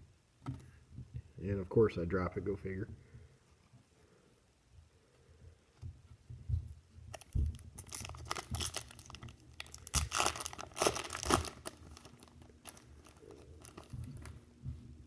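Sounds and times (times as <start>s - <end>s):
wrapper tearing and crinkling: 7.1s - 14.4s.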